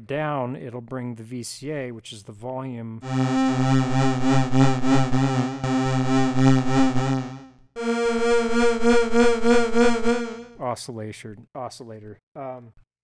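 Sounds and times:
synthesizer wobbling note: 3.0s - 10.6s.

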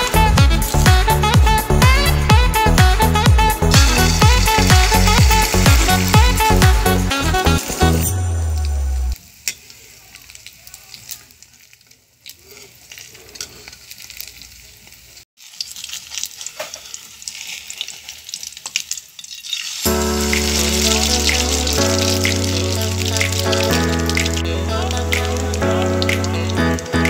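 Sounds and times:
background music: 0.0s - 9.2s, 19.9s - 27.0s
batter sizzling in oil: 3.6s - 8.1s, 9.1s - 27.0s
metal spoon scraping a pan: 12.3s - 14.2s, 15.8s - 18.1s.

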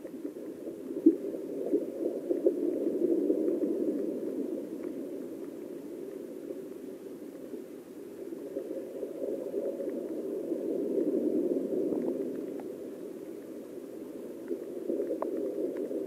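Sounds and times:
faint ticks: 0.0s - 10.4s, 11.8s - 16.0s
muffled underwater river rushing: 0.0s - 16.0s.

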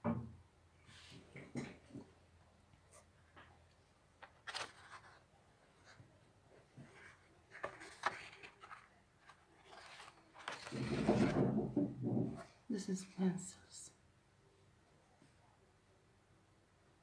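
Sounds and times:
page turning: 4.2s - 6.0s, 6.8s - 11.4s
paper crackling and rustling: 4.2s - 6.0s, 6.8s - 11.5s.

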